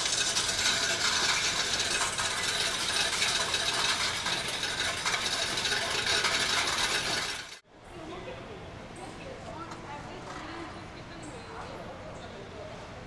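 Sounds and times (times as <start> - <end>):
coins clattering through machine: 0.0 - 7.6.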